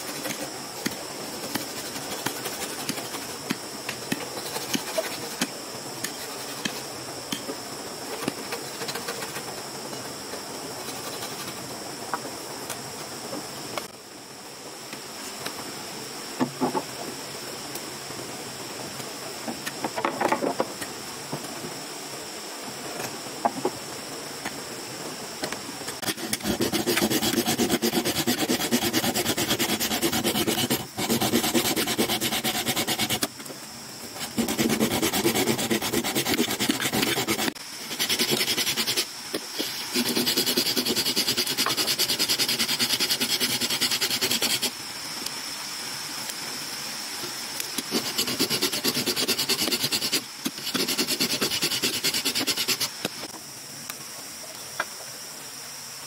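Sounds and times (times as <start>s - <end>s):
digging stick scraping earth: 0.0s - 7.4s, 26.0s - 33.3s, 34.2s - 44.7s
insects buzzing: 0.0s - 56.0s.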